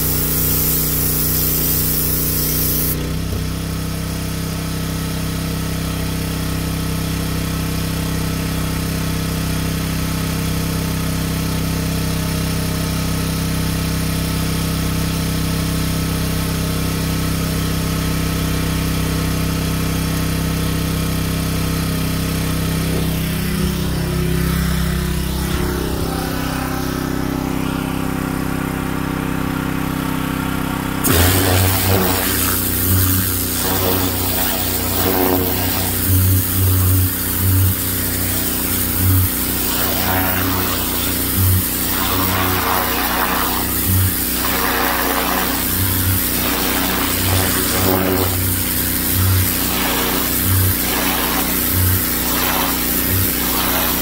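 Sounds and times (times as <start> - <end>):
high-pressure spray hissing: 0.0 - 3.0, 31.0 - 54.0
pressure washer engine running: 0.0 - 54.0.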